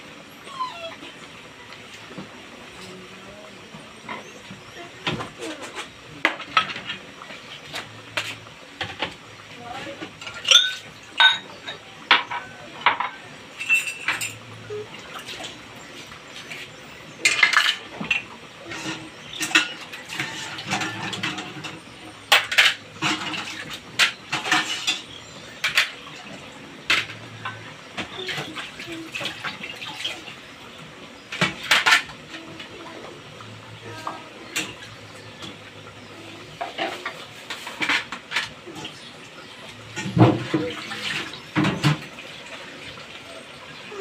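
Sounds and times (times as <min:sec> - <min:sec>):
dishes and kitchenware clattering: 0:04.1 - 0:09.2, 0:10.0 - 0:15.6, 0:17.2 - 0:30.3, 0:31.3 - 0:32.6, 0:33.9 - 0:39.1, 0:39.8 - 0:42.3.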